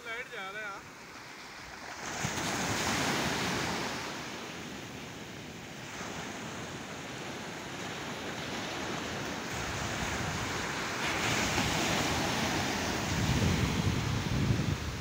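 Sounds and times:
surf washing up a beach: 0:00.0 - 0:15.0
wave crashing: 0:00.6 - 0:04.5, 0:08.4 - 0:15.0
wind rumble on microphone: 0:04.9 - 0:15.0.

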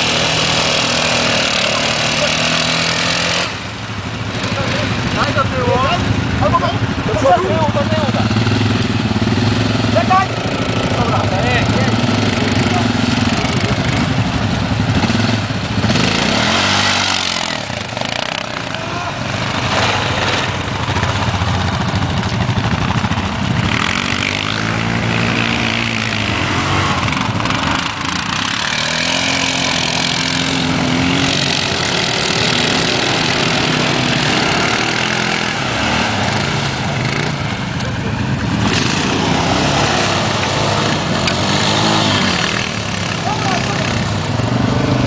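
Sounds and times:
quad bike engines revving: 0:00.0 - 0:45.0.

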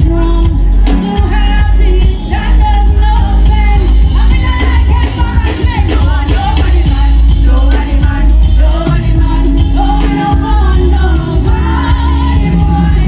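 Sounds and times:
live band with heavy bass: 0:00.0 - 0:13.0
person singing: 0:00.0 - 0:13.0.

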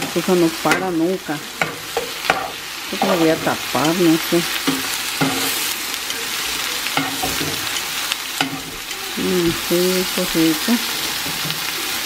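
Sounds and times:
peppers sizzling in oil: 0:00.0 - 0:12.0
person speaking: 0:08.9 - 0:10.8.

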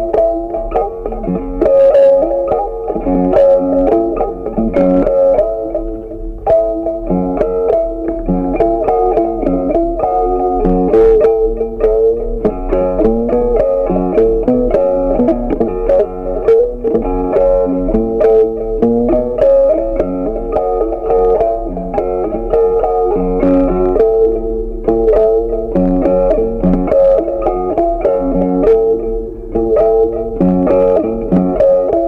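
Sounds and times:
plucked guitar tune with bass: 0:00.0 - 0:32.0.

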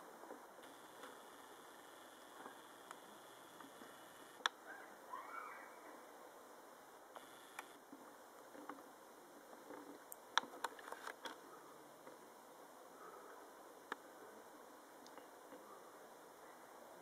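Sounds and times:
heater hissing: 0:00.6 - 0:04.4.

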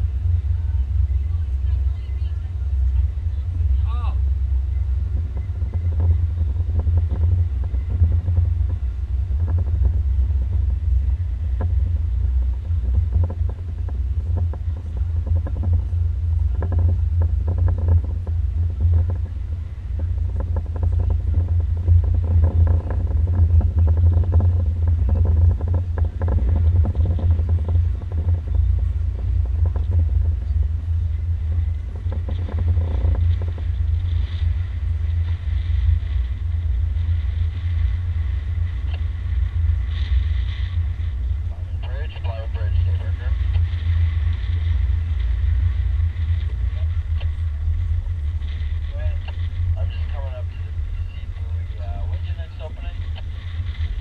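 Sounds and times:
motorboat running noise: 0:00.0 - 0:54.0
wind buffeting microphone: 0:00.0 - 0:54.0.

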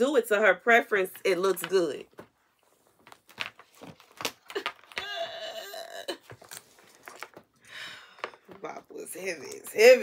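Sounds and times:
objects being handled: 0:01.1 - 0:05.3, 0:06.1 - 0:09.6.

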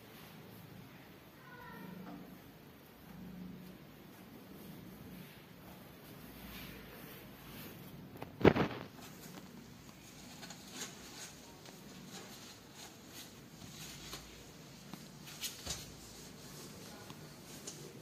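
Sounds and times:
kittens rustling on cloth: 0:03.6 - 0:18.0.

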